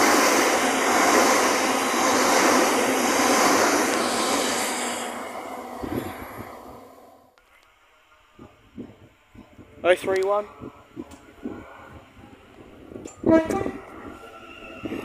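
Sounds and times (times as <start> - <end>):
electric train passing: 0.0 - 7.4, 10.6 - 15.0.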